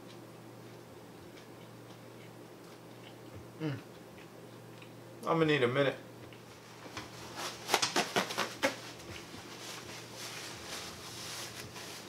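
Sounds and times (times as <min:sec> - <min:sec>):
paper napkin crinkling: 0:06.6 - 0:12.0.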